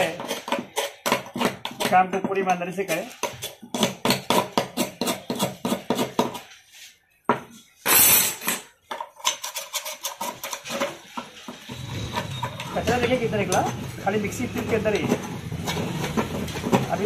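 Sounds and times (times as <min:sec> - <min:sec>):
metal tools scraping metal tube: 0:07.8 - 0:17.0.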